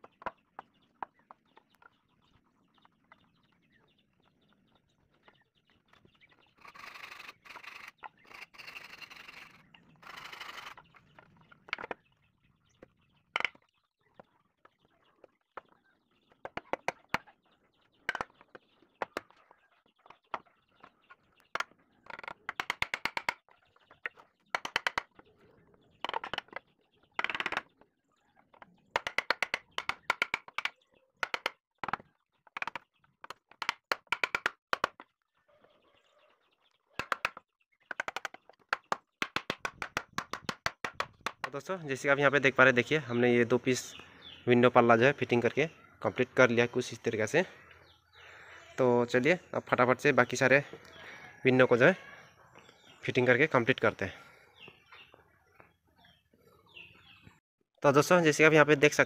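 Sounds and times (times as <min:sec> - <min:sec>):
hammer tapping wood joints: 0:11.6 - 0:12.0, 0:13.3 - 0:17.3, 0:20.0 - 0:25.3, 0:27.2 - 0:27.8, 0:28.6 - 0:35.1, 0:37.0 - 0:41.7.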